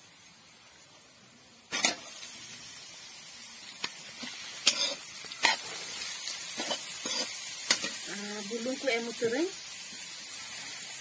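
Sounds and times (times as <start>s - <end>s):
frying hiss: 0.0s - 11.0s
vegetables sizzling in hot oil: 0.0s - 11.0s
steel spoon scraping pan: 4.2s - 8.0s.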